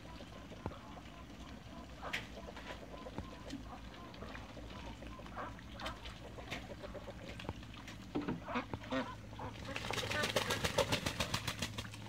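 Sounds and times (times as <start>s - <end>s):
geese honking: 0.0s - 7.2s, 8.4s - 10.6s
ducks quacking: 0.0s - 7.5s, 8.2s - 11.5s.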